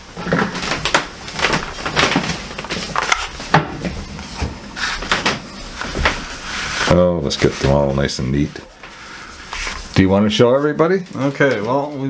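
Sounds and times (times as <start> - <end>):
cardboard boxes knocking and rustling: 0.1 - 6.4.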